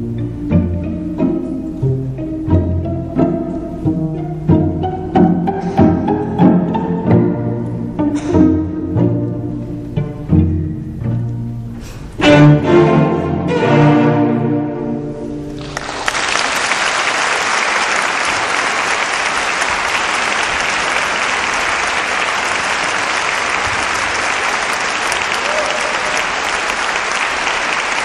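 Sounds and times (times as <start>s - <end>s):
cello ensemble chord: 0.0s - 15.8s
audience applause: 15.6s - 28.0s.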